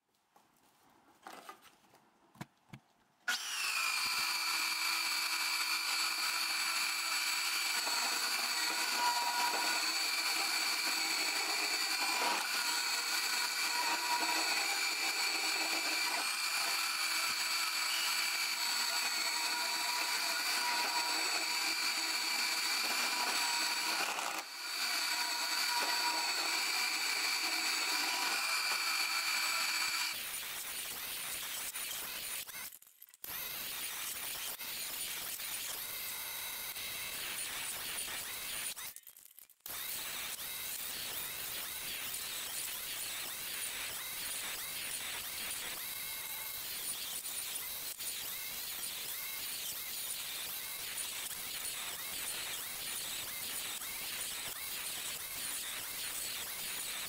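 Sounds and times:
bandsaw cutting steel: 0:03.3 - 0:31.0.

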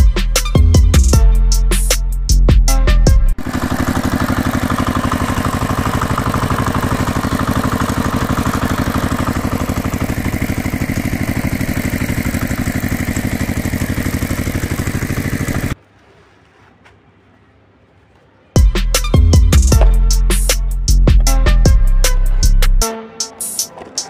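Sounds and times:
tractor engine idling: 0:03.4 - 0:15.8, 0:19.5 - 0:22.8.

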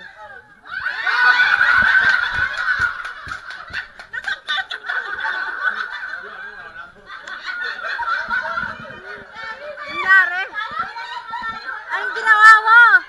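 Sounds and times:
people laughing: 0:00.0 - 0:12.9
people talking: 0:04.2 - 0:13.0.

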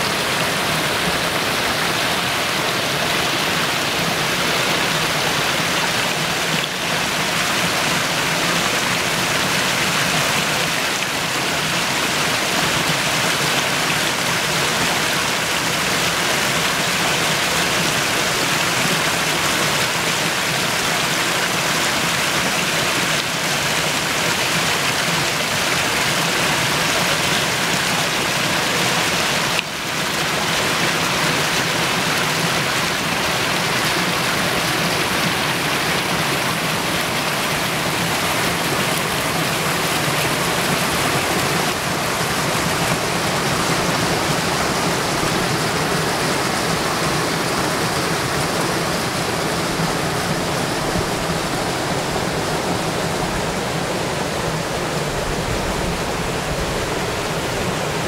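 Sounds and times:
stream rushing over rocks: 0:00.0 - 0:58.0.

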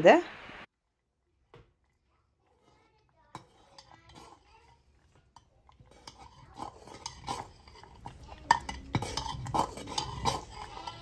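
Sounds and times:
ladle scraping metal pot: 0:02.4 - 0:11.0.

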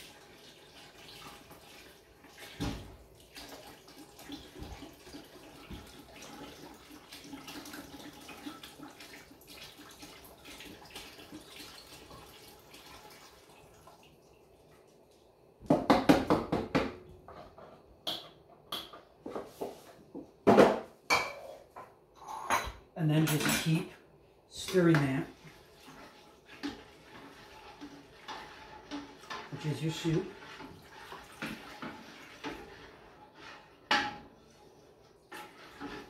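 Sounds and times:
liquid pouring into a pot: 0:00.0 - 0:15.2, 0:24.7 - 0:36.0.

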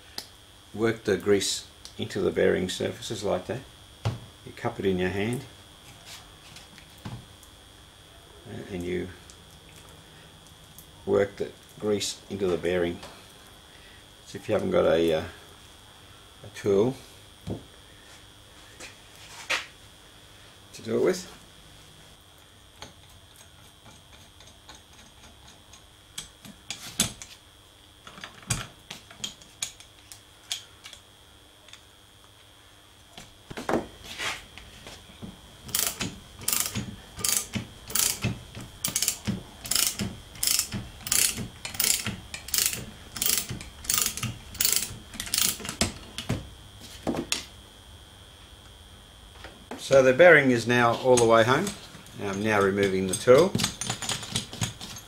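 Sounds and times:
ratchet spanner clicks: 0:35.7 - 0:45.8
scattered clicks and knocks: 0:35.7 - 0:46.4, 0:52.4 - 0:55.0.

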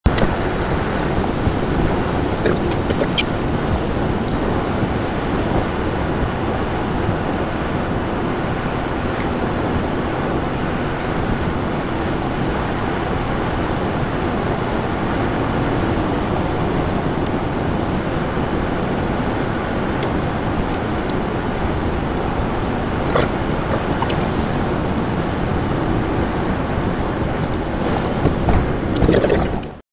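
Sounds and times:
car cabin road rumble: 0:00.0 - 0:29.8.

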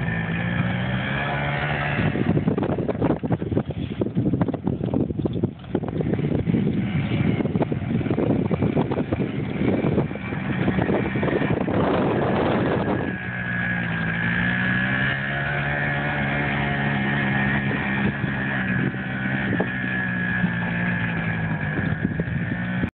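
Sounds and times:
small quad engine running: 0:00.0 - 0:22.9.

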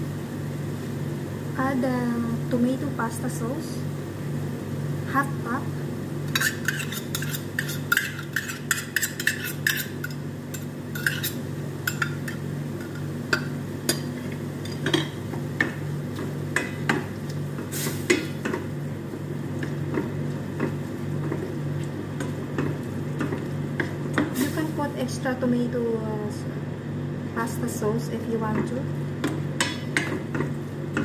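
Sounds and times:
steady low hum: 0:00.0 - 0:31.0
metal spoon tapping and scraping: 0:06.3 - 0:15.8
spatula stirring sauce: 0:06.4 - 0:12.2.

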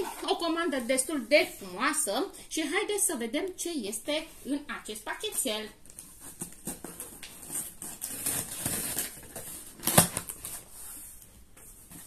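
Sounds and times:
scissors snipping packing tape: 0:06.4 - 0:10.6.

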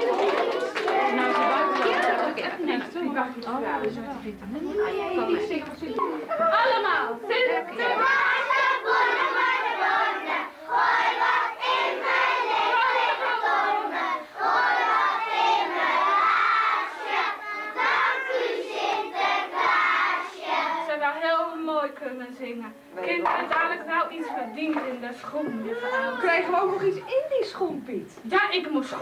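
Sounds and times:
young children's voices: 0:03.7 - 0:20.9, 0:23.7 - 0:27.5.

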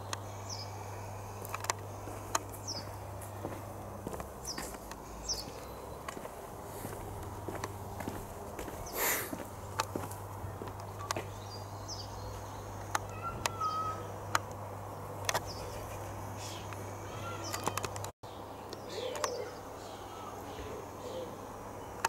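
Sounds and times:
birds chirping: 0:00.0 - 0:22.0
steady low hum: 0:00.0 - 0:22.0.

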